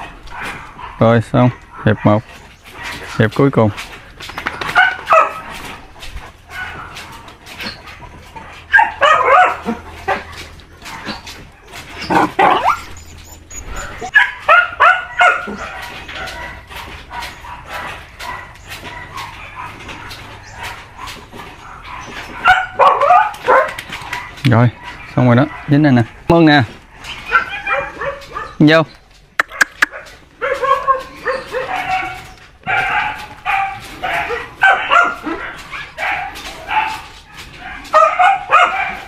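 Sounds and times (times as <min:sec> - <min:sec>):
dogs barking and yipping: 0:00.0 - 0:39.0
dog whining: 0:06.6 - 0:25.7, 0:26.9 - 0:28.6, 0:29.5 - 0:36.9.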